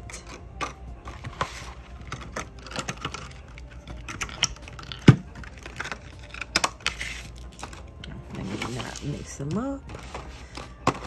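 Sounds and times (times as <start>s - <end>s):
small bottles clicking on hard surface: 2.0s - 8.2s.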